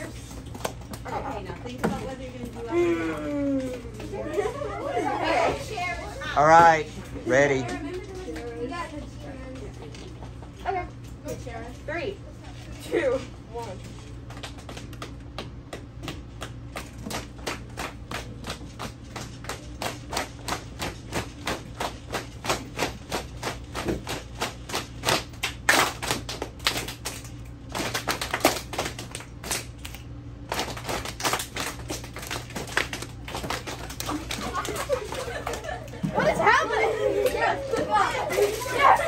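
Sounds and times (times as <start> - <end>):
hands clapping and slapping rhythmically: 0.0 - 1.4, 14.2 - 39.0.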